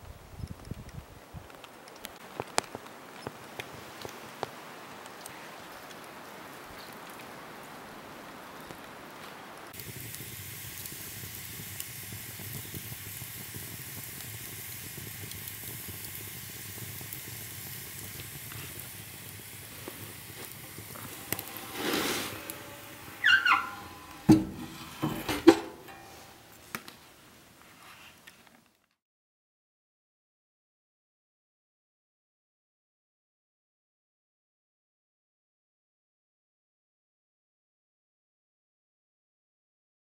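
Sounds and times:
wood fire hissing: 0.1 - 28.5
fire crackling: 0.1 - 28.9
stove handle squeak: 20.5 - 26.4
metal stove door clanks: 21.1 - 26.4.

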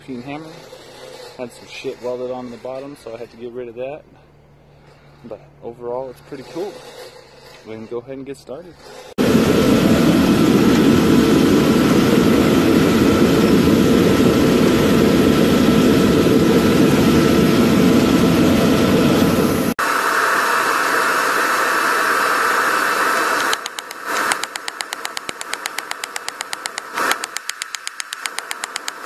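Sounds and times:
forge fire roaring: 9.2 - 25.3.

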